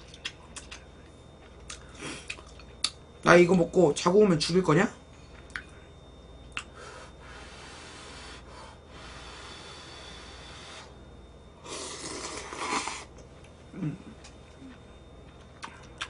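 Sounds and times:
noodles slurped: 11.7 - 13.1.

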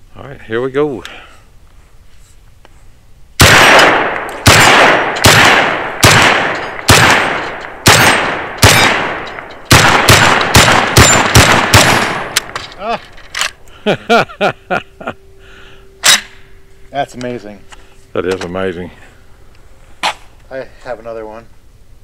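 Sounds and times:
shotgun shots with echo: 3.4 - 12.6.

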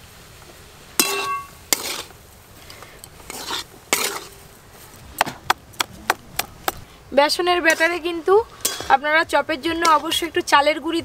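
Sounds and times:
ringing metal clang: 1.0 - 1.6, 8.6 - 9.0
spatula scraping a metal wok: 1.0 - 2.2, 3.1 - 4.5, 7.6 - 9.0, 9.7 - 10.4.

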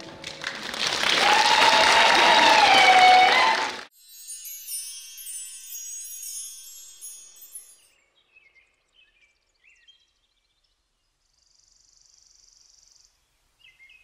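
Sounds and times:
shimmering wind chimes: 3.9 - 8.2
faint high chirps: 4.0 - 8.5.

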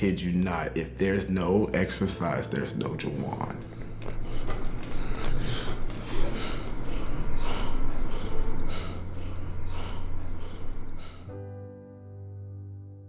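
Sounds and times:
low music drone: 0.0 - 13.0
soft music: 0.0 - 13.0
man breathing hard: 3.6 - 11.4.

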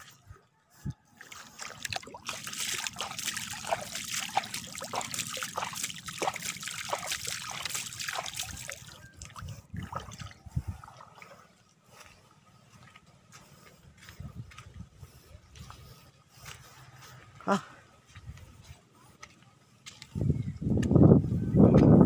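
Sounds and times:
fish splashing at water surface: 1.2 - 10.3.

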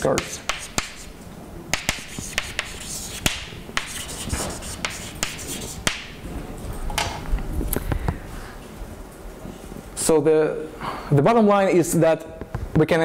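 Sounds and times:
chalk tapping on board: 0.0 - 6.2
scratching strokes on board: 0.0 - 6.2.

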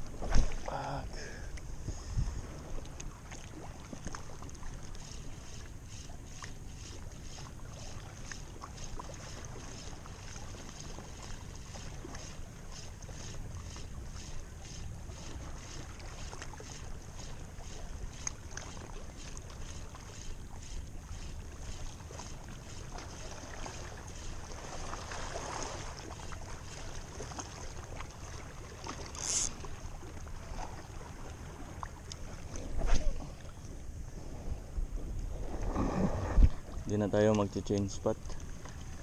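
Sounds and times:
wind buffeting microphone: 1.8 - 2.7
fishing reel ticking: 5.0 - 10.0, 11.1 - 24.9, 29.1 - 29.6.

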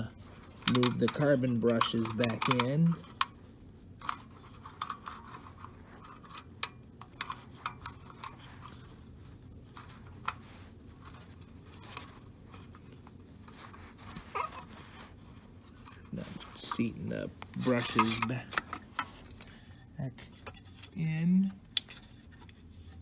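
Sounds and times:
light scraping: 4.0 - 23.0.

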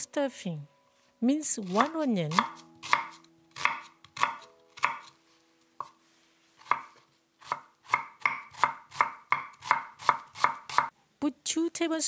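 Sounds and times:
cleaver chopping on wooden board: 1.8 - 5.1, 6.6 - 10.9.

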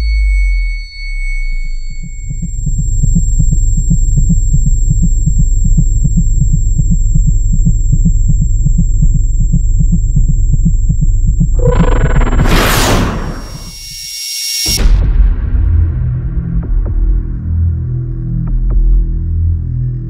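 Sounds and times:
low throbbing heartbeat pulse: 2.0 - 13.7.

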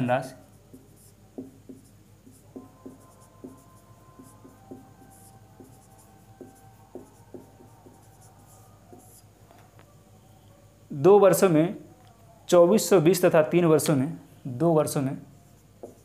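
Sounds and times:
marker writing on whiteboard: 0.3 - 9.4, 15.4 - 16.0.

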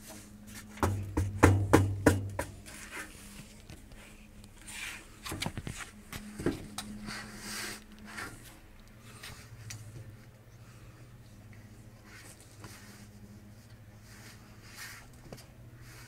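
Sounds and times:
feet knocking on metal platform: 0.8 - 2.6.

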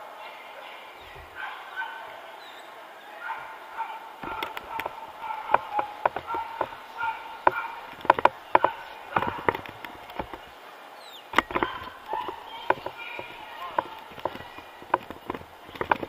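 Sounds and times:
background murmur: 0.0 - 16.0
sharp knocks and clicks: 4.2 - 10.6, 11.4 - 16.0.

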